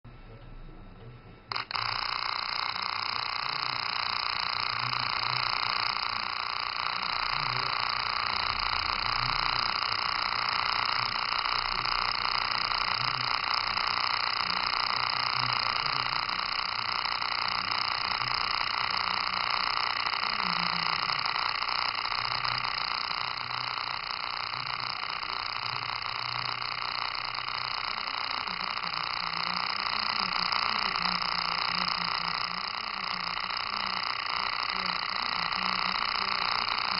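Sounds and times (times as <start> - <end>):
spark gap buzzing: 1.5 - 36.9.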